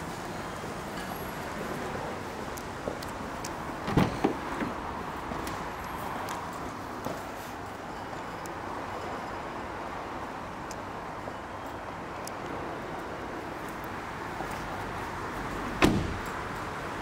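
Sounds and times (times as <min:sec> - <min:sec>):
car door shutting: 0:03.8 - 0:04.8, 0:15.8 - 0:16.3.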